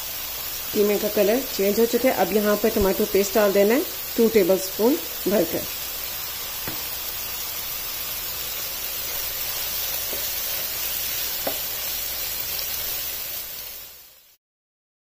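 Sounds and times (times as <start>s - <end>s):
meat sizzling in a pan: 0.0s - 14.4s
spatula knocking: 6.6s - 7.0s, 10.0s - 11.7s
wooden spatula stirring: 9.1s - 11.7s.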